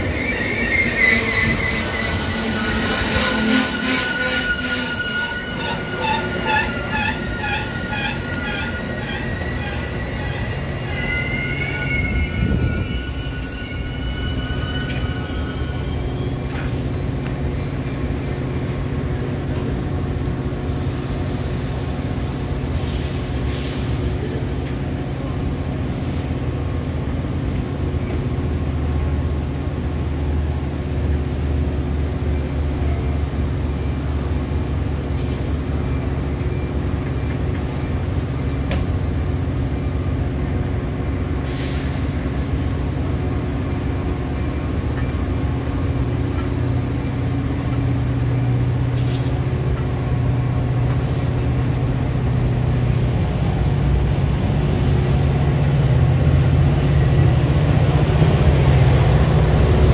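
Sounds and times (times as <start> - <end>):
locomotive engine humming: 0.0 - 59.9
air brake hisses: 20.6 - 24.0, 41.4 - 42.2.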